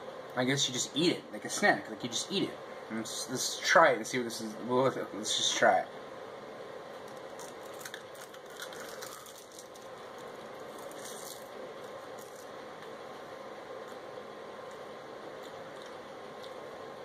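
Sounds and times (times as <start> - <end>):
steady background hiss: 0.0 - 17.0
crunchy seaweed being chewed: 7.0 - 12.9.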